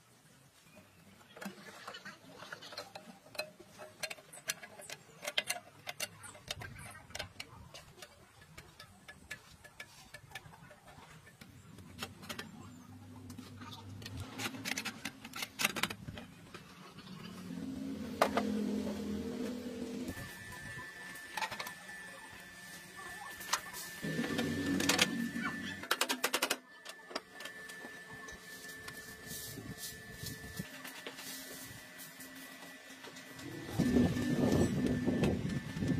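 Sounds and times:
metal parts clicking: 2.8 - 12.6, 13.3 - 16.6
low hum: 11.3 - 25.9.

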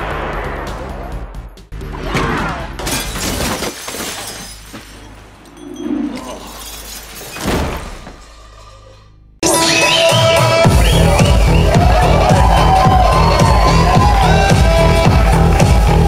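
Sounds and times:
loud crashes and smashing: 2.8 - 5.2.

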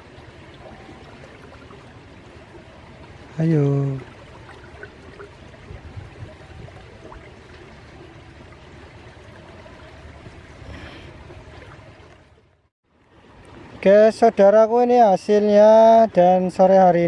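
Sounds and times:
river rushing: 0.0 - 12.3.

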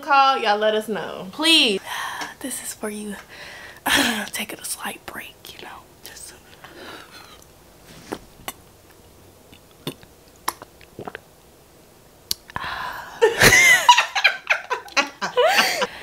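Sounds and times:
person drinking and gulping: 9.5 - 11.3
breathy vocal exhale: 12.6 - 13.2.

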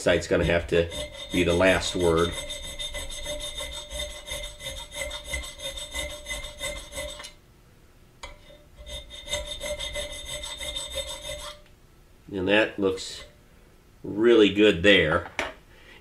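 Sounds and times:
hand file rasping on brass: 0.2 - 7.4, 8.4 - 11.6.

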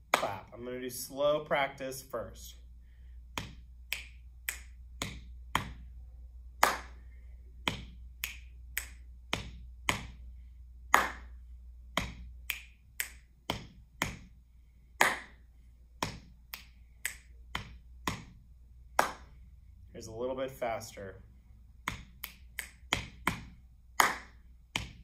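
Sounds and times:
hand clap: 0.0 - 0.5, 3.3 - 6.0, 6.6 - 19.4, 21.8 - 25.0
finger snaps: 3.3 - 5.9, 7.6 - 10.2, 10.9 - 14.4, 16.0 - 18.3, 21.8 - 25.0
palm pats on chest: 3.3 - 5.9, 21.8 - 25.0.

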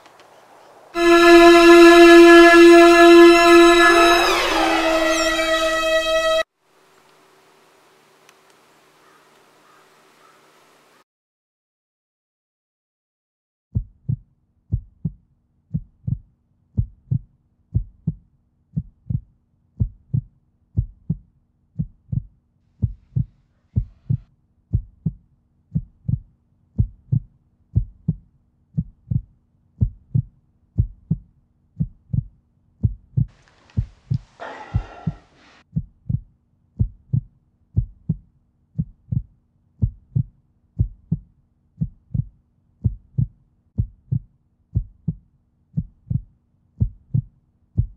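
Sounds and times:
hissy rasping sound: 1.0 - 6.4, 34.2 - 35.6
heartbeat thumps: 13.8 - 16.2, 16.8 - 18.2, 18.8 - 45.2, 45.8 - 47.9.

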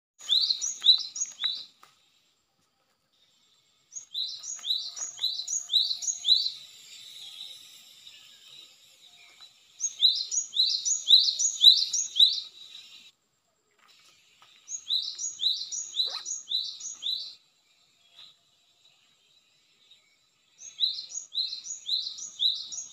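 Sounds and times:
bird calling in whistled notes: 0.2 - 1.7, 9.8 - 12.5, 14.7 - 17.4.

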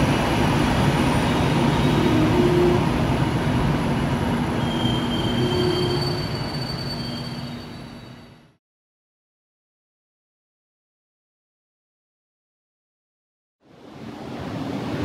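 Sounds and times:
train coaches rolling over rails: 0.0 - 8.3
high wheel squeals: 4.6 - 8.5.

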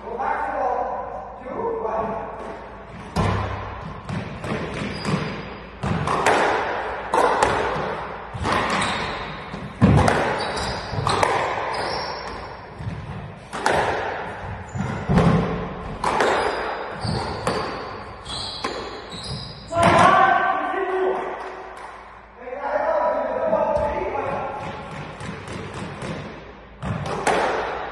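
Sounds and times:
squash ball hitting rackets and walls: 2.1 - 20.4, 23.5 - 27.9
shoes squeaking on court floor: 4.4 - 6.2, 8.3 - 13.4, 14.4 - 19.9.

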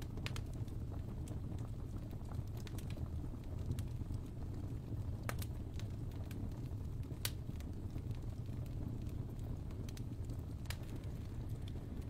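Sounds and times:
low rumble of flames: 0.0 - 12.0
sharp pops of fire: 5.2 - 6.4, 7.0 - 12.0.

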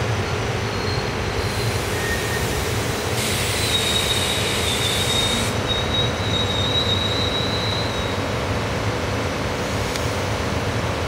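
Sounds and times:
train wheels rumbling on rail: 0.0 - 11.0
high-pitched wheel squeal: 0.6 - 2.6, 3.4 - 8.2.

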